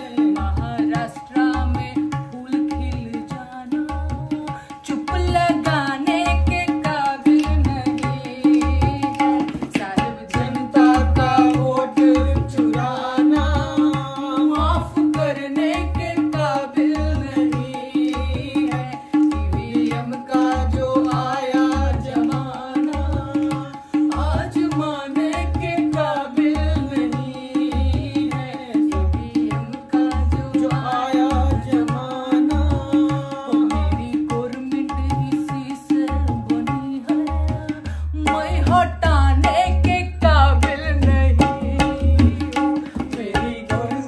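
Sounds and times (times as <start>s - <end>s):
woman singing folk song: 0.0s - 44.0s.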